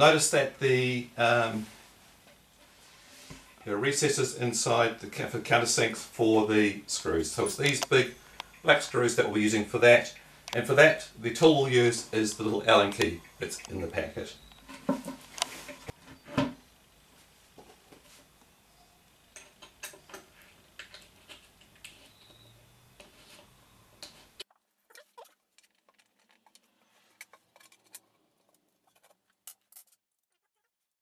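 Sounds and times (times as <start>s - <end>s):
light room hiss: 0.0s - 24.4s.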